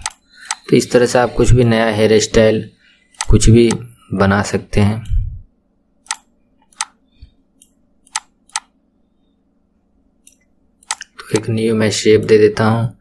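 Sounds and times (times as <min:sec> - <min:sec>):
computer mouse clicking: 0:00.0 - 0:00.7, 0:03.1 - 0:03.8, 0:06.0 - 0:07.0, 0:07.6 - 0:08.7, 0:10.2 - 0:11.5
faint steady hum: 0:00.0 - 0:13.0.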